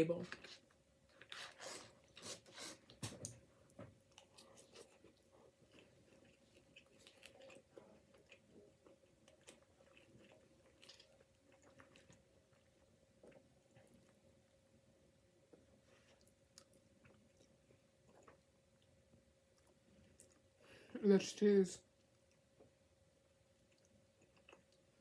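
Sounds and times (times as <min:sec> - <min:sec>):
faint steady hum: 0:00.0 - 0:25.0
chewing: 0:04.0 - 0:14.6, 0:15.5 - 0:20.6, 0:23.5 - 0:25.0.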